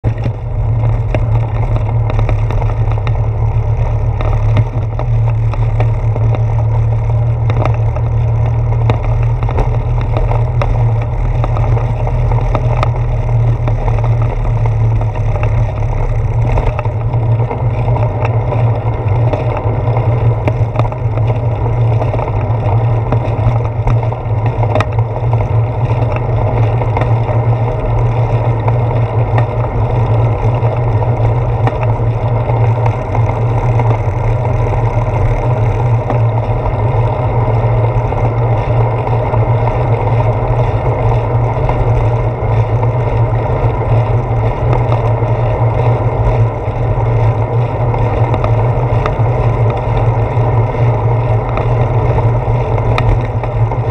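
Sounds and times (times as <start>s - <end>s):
bicycle knocks from bumps: 0.0s - 37.1s
bicycle tyre and handlebar rumble: 0.0s - 53.9s.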